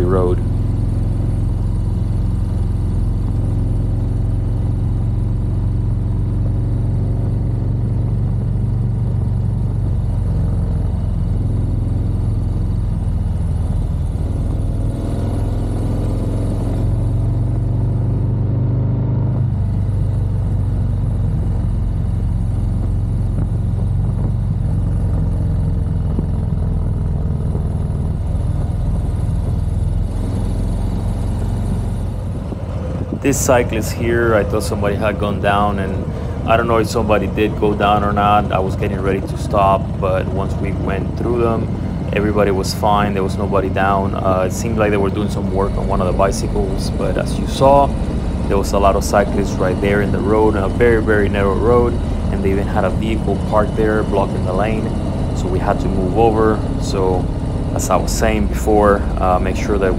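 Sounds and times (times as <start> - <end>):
motorcycle engine running: 0.0 - 59.9
wind noise on microphone: 32.2 - 40.4.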